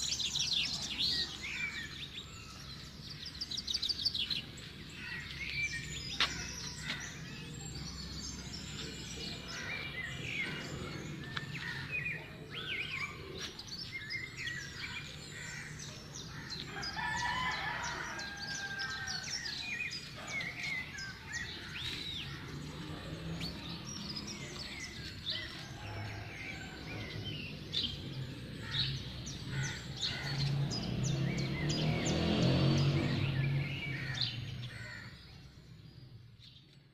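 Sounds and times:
small birds chirping: 0:00.0 - 0:36.9
rooster crowing: 0:16.7 - 0:19.6, 0:25.3 - 0:27.2.

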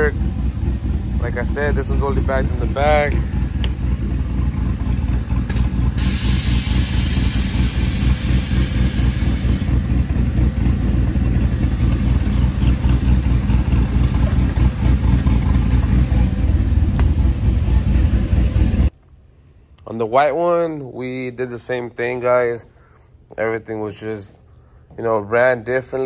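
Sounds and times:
rough mechanical rumble: 0:00.0 - 0:19.4
air hissing: 0:05.5 - 0:09.9, 0:11.3 - 0:13.0.

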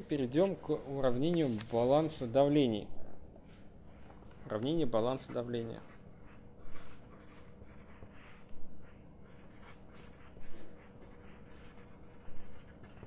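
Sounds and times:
marker scratching on paper: 0:05.2 - 0:13.0.

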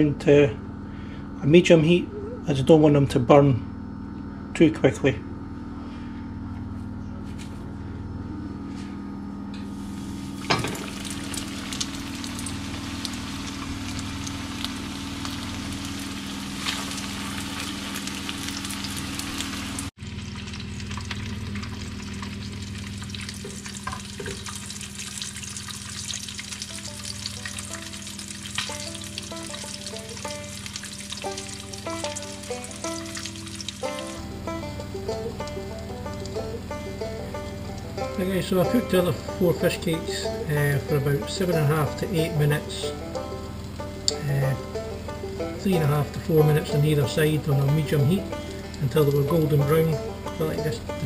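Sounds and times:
fish cakes sizzling in oil: 0:09.7 - 0:40.8.

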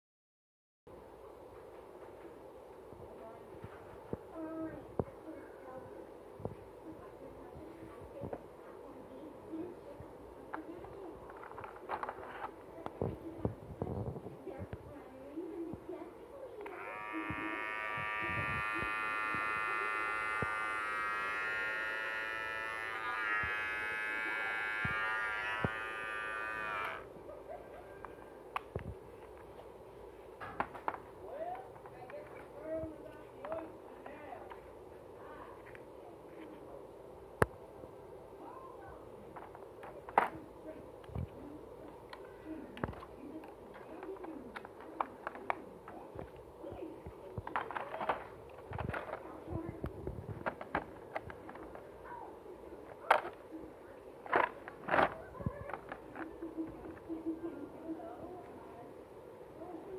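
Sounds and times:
hair clipper buzzing: 0:16.6 - 0:27.1
plastic clicks: 0:52.9 - 0:53.4.

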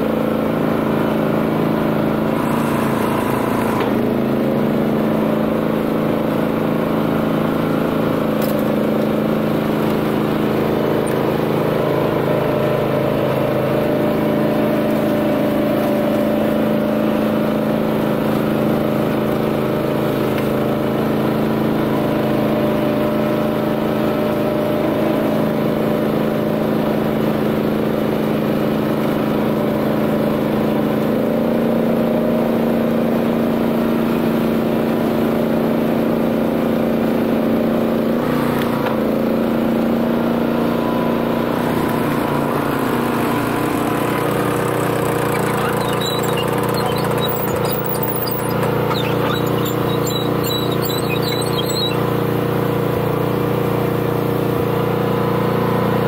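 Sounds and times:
tractor engine under load: 0:00.0 - 0:17.2, 0:41.5 - 0:53.1
flail mower cutting grass: 0:00.0 - 0:32.3, 0:38.2 - 0:56.0.

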